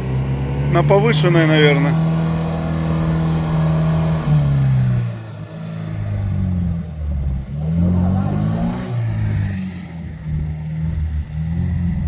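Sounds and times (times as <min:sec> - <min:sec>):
off-road vehicle engine: 0:00.0 - 0:12.0.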